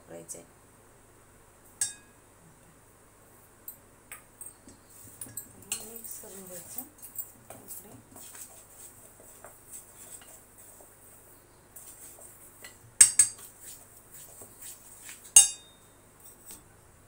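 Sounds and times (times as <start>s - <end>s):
spoon clinking against steel bowl: 1.8s - 2.1s, 4.4s - 6.1s, 12.6s - 13.5s, 15.4s - 15.8s
spoon scraping flour in bowl: 4.7s - 7.0s, 7.6s - 15.4s.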